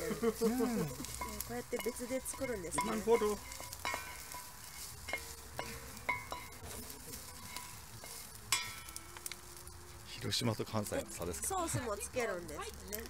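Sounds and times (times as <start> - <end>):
spatulas clinking and scraping pan: 0.0 - 9.7
noodles sizzling in a frying pan: 0.0 - 13.0.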